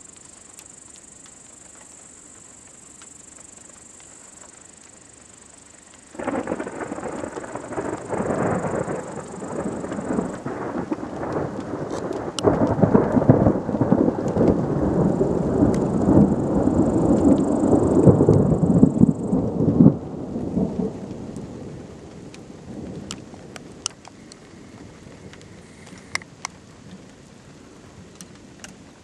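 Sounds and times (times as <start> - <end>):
rolling thunder: 6.0 - 26.5.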